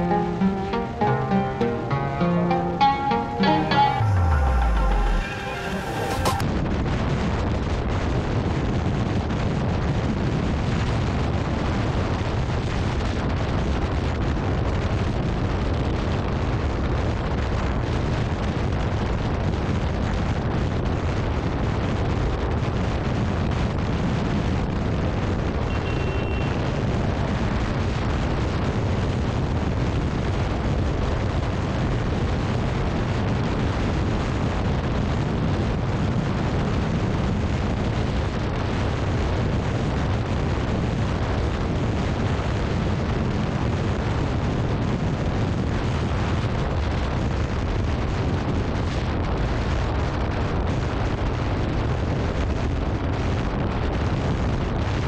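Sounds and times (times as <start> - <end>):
short high horn beep: 0.0 - 6.4, 25.7 - 26.6
wind buffeting microphone: 6.4 - 55.0.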